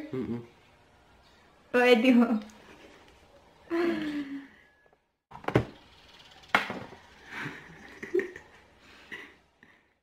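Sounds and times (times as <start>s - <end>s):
quiet laughter: 7.3s - 10.0s.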